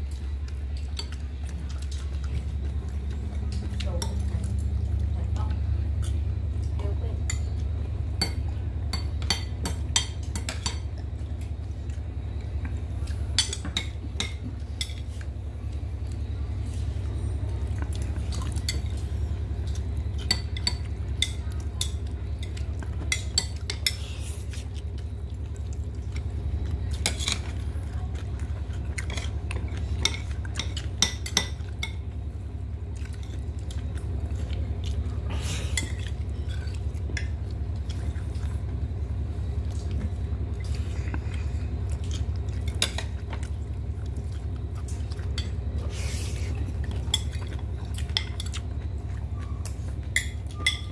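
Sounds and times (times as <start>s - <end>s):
steady low hum: 0.0s - 50.9s
spoon clinking on plates: 50.2s - 50.9s.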